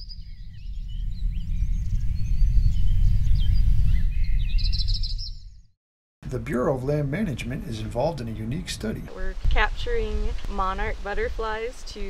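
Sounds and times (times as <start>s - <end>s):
bird trill: 0.0s - 5.6s
birds chirping and twittering: 0.0s - 5.7s.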